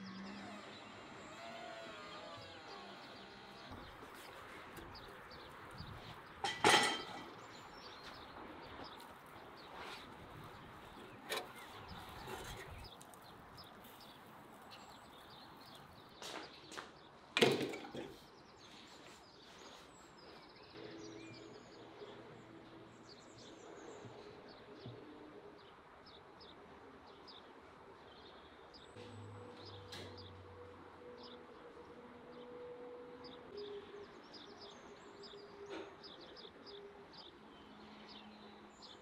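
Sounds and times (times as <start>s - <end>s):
faint birdsong: 0.0s - 39.0s
cookware clunking: 6.4s - 7.4s.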